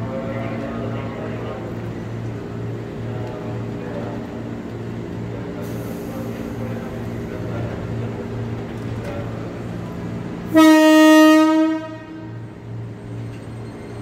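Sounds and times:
electric train horn blast: 10.5s - 12.4s.

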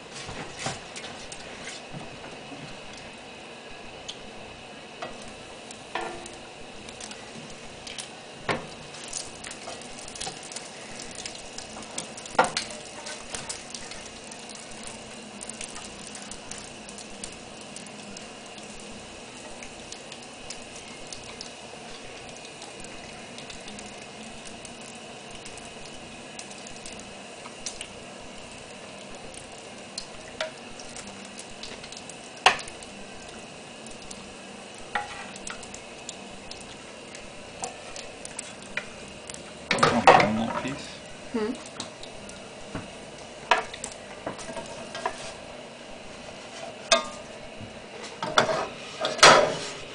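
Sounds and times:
sauce sizzling in a skillet: 0.0s - 49.8s
wooden spoon scraping a pan: 0.1s - 1.9s, 13.0s - 13.5s, 34.9s - 35.4s, 44.3s - 45.5s, 46.1s - 47.2s, 48.0s - 49.9s.

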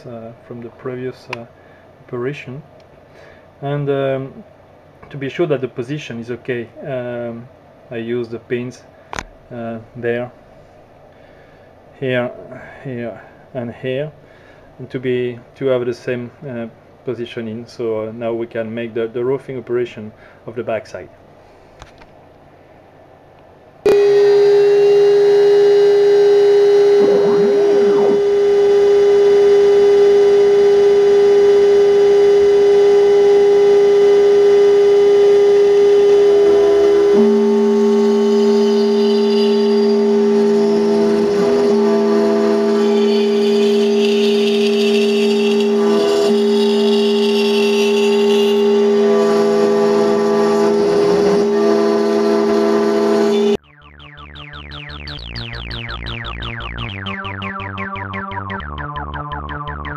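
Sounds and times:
spindle motor high whine: 23.8s - 53.7s
end mill cutting aluminium: 23.9s - 53.6s
axis motors gliding tone: 26.0s - 29.7s, 35.8s - 51.5s.

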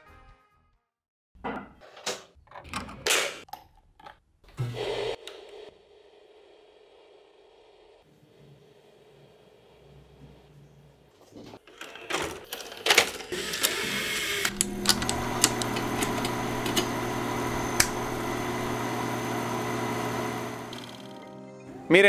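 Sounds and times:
tape mechanism clicks and clunks: 12.9s - 21.1s.

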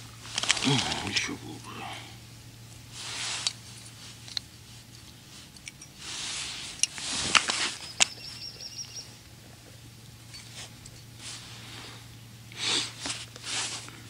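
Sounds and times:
fishing rod handling rustle: 0.0s - 1.3s, 2.7s - 8.5s, 9.5s - 12.1s, 12.8s - 14.0s.

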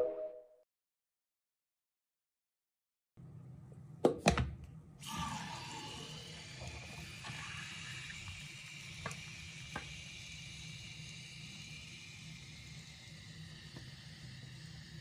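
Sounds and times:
aerosol foam spraying hiss: 7.3s - 15.0s.

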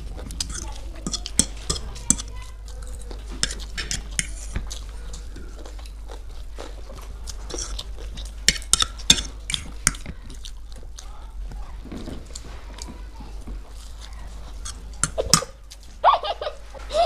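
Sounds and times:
forks scraping on plates: 0.0s - 6.0s, 6.6s - 10.5s, 13.7s - 15.6s
people slurping and chewing noodles: 0.0s - 17.0s.

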